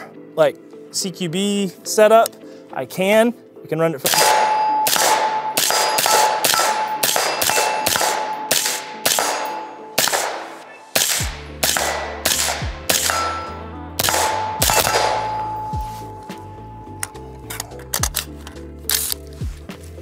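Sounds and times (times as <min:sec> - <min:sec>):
suppressed rifle shots: 0:04.1 - 0:15.7
metallic ring: 0:14.5 - 0:17.6.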